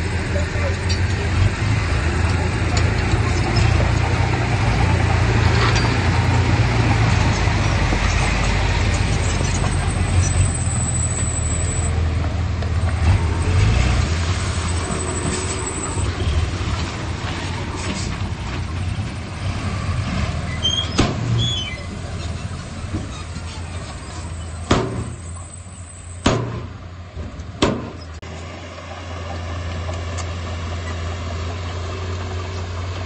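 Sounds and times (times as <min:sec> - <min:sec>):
heavy diesel machinery rumbling: 0:00.0 - 0:33.0
short high squeaks: 0:09.2 - 0:11.9, 0:20.5 - 0:26.3.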